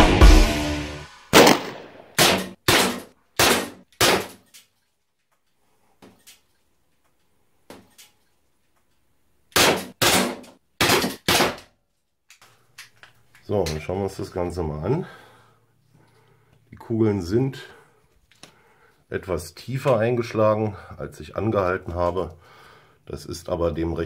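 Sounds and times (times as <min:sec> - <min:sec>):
rock music: 0:00.0 - 0:01.3
air pistol shots: 0:01.3 - 0:04.5, 0:09.5 - 0:11.7.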